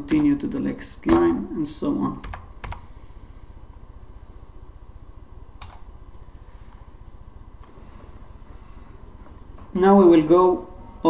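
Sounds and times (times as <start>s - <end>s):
faint low hum: 0.0s - 11.0s
computer keyboard keystroke: 2.2s - 2.8s, 5.6s - 5.9s.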